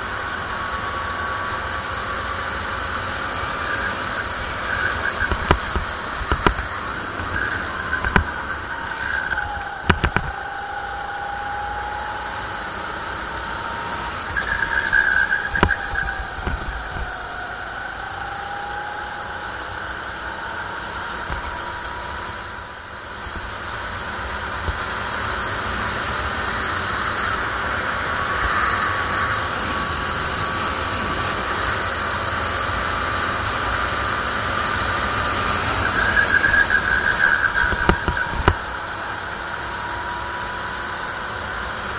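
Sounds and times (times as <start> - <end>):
wind hiss: 0.0 - 41.8
kart engine running hard: 0.0 - 41.9
tyres squealing: 2.5 - 12.2, 13.6 - 17.3, 35.0 - 38.8.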